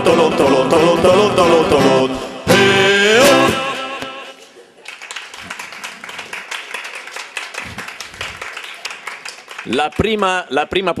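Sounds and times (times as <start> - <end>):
audience clapping: 4.4 - 10.8.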